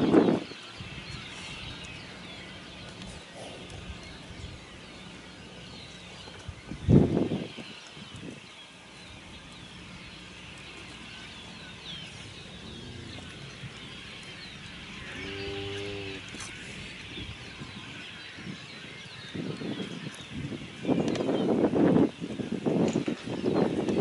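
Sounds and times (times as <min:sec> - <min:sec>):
cow mooing: 0:15.1 - 0:16.3.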